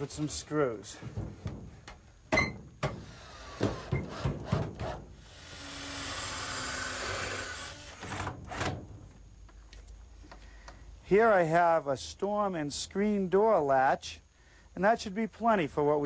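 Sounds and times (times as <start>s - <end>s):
wooden knocks and clunks: 1.0s - 5.0s.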